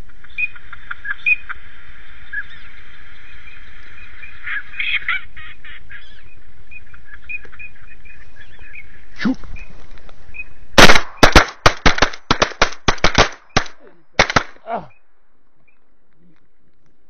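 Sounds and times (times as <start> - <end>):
ducks calling: 0.0 - 11.0.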